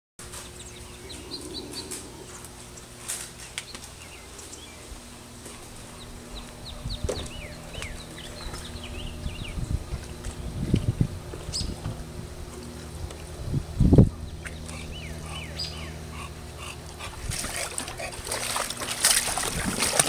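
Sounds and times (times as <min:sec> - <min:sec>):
steady low hum: 0:00.2 - 0:20.0
small birds chirping: 0:00.3 - 0:11.8, 0:14.0 - 0:16.7.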